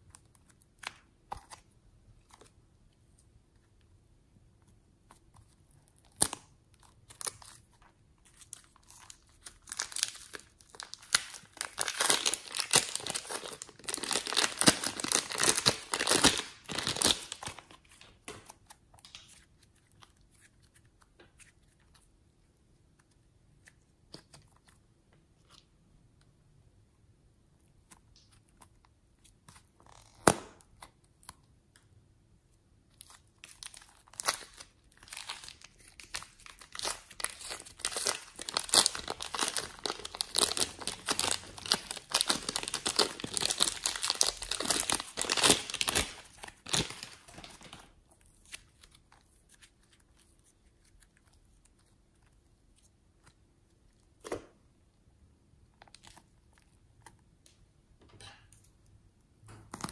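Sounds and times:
sticky slime crackling and popping: 8.3 - 21.5, 33.0 - 51.9
plastic bag crinkling: 8.6 - 18.1, 33.7 - 47.9.

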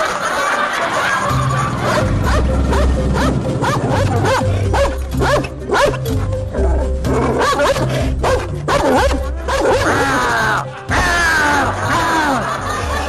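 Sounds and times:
background music with bass line: 1.3 - 13.0.

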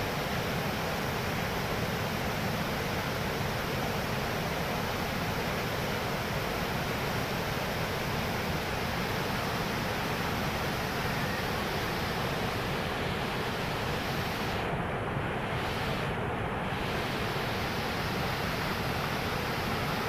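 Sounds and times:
river rushing over boulders: 0.0 - 20.0.

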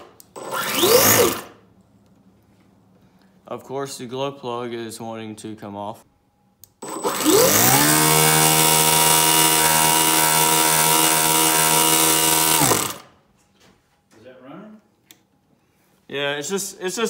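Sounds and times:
electric starter whirring: 0.0 - 1.6, 6.6 - 13.2.

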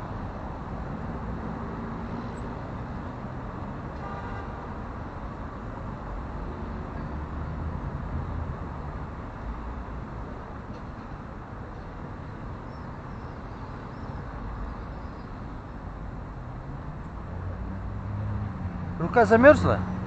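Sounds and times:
city traffic rumble: 0.0 - 20.0.

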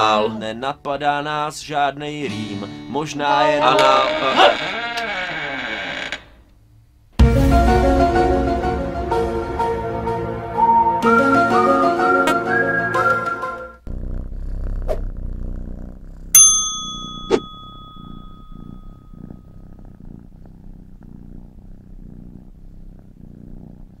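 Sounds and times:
flute tune: 7.2 - 13.8
cartoon cat purring: 13.8 - 16.4, 17.1 - 24.0
bright bell ding: 16.4 - 19.1.

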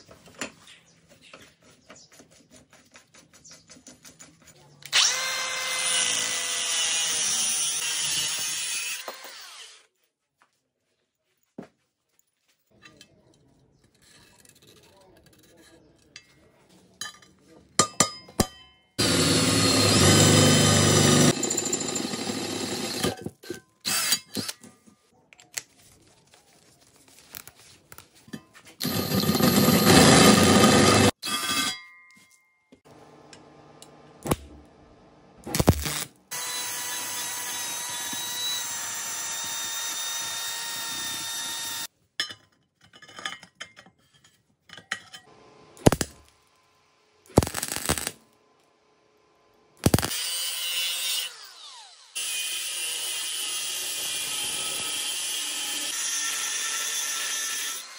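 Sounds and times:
cordless drill boring into steel: 4.9 - 9.8, 19.0 - 23.2, 23.8 - 24.6, 28.8 - 31.7, 35.6 - 41.9, 49.8 - 57.9
angle grinder winding down: 19.0 - 23.2, 28.8 - 31.2.

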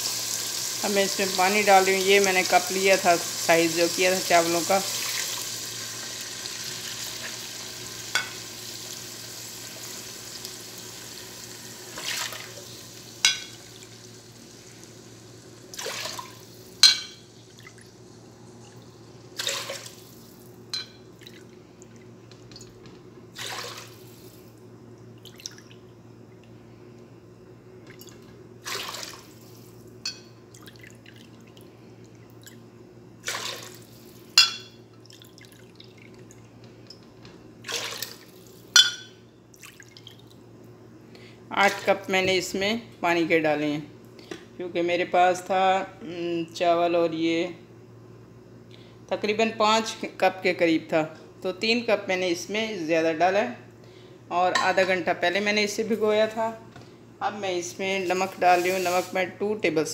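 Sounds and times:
water pouring into pot: 4.2 - 14.6, 15.4 - 16.7, 28.6 - 29.4
steady low hum: 9.7 - 59.9.

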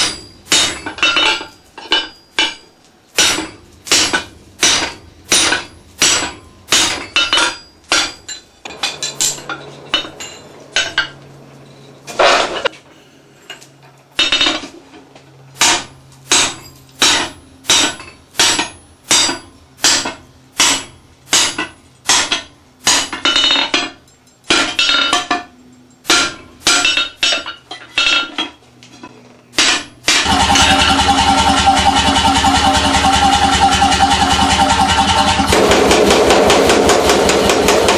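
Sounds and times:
hammer striking steel on anvil: 0.0 - 11.2, 15.6 - 28.6, 29.6 - 37.9.

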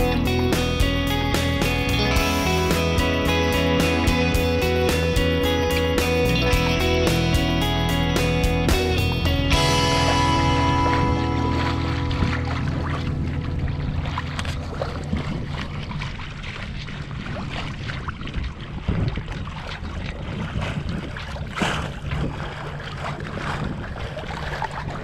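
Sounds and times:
water splashing along hull: 0.0 - 25.0
wind buffeting microphone: 8.8 - 25.0.

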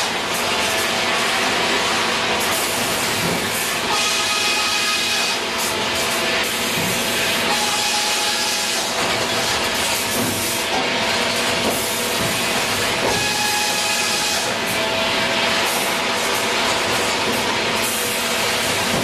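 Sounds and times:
saw cutting a log: 2.6 - 9.0.

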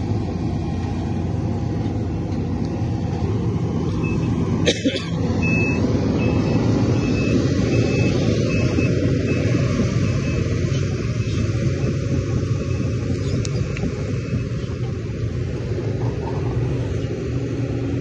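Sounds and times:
excavator diesel engine rumble: 0.0 - 18.0
travel alarm beeping: 5.4 - 10.6.

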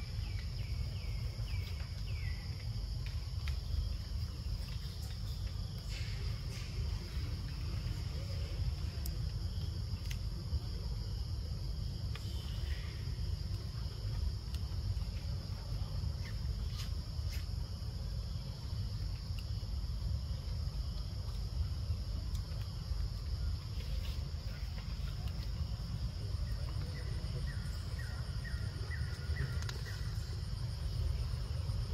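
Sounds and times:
small chirps: 23.6 - 30.8
faint clicks: 29.4 - 30.0.

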